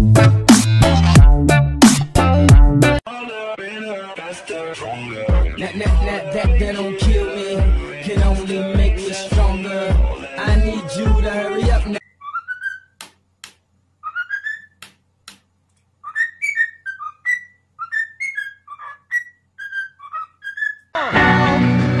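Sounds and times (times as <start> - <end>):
cockatiel whistling: 12.0 - 13.0, 14.0 - 14.8, 16.0 - 20.9
sharp clicks: 14.8 - 15.9.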